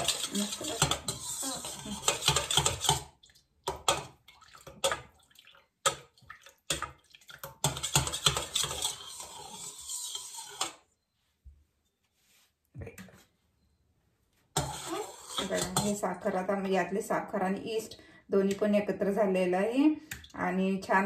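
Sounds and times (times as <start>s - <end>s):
metal spoon stirring in bowl: 0.0s - 5.1s, 5.9s - 10.8s, 14.5s - 16.2s.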